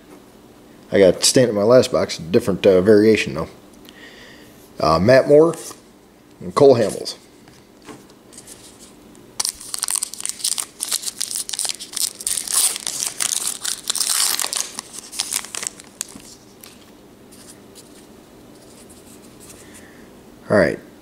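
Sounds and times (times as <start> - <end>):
wrapper tearing and crinkling: 9.4 - 16.9.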